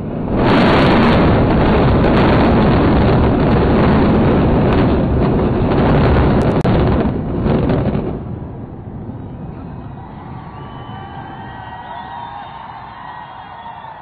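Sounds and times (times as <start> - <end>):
buildings collapsing rumble: 0.0 - 14.0.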